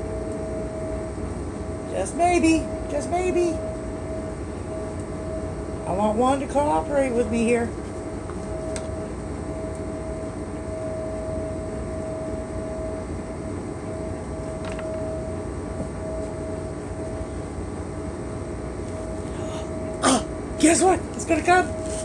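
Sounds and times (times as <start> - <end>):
mechanical drone with hum: 0.0 - 22.0.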